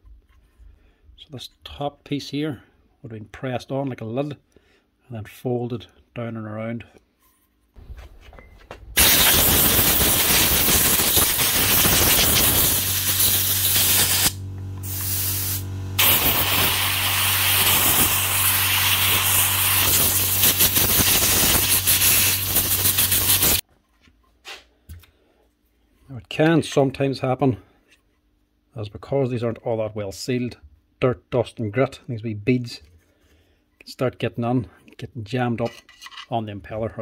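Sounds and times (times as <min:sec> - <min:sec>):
steady low hum: 0:07.8 - 0:18.7
compressed air hissing: 0:09.0 - 0:23.6.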